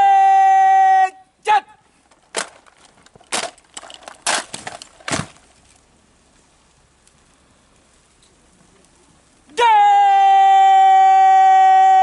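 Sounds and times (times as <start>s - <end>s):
rifles slapping and thumping: 2.1s - 5.5s.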